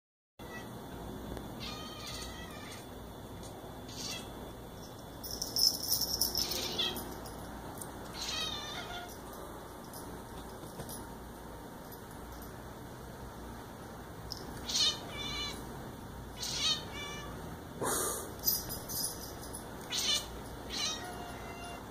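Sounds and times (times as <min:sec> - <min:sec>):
cat chirping: 0:03.9 - 0:04.3, 0:08.2 - 0:09.1, 0:14.6 - 0:15.6, 0:16.4 - 0:17.4.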